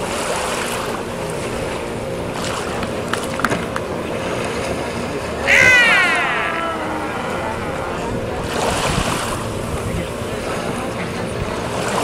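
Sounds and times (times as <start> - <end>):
harbour water: 0.0 - 12.0
high falling whoop: 5.4 - 8.8.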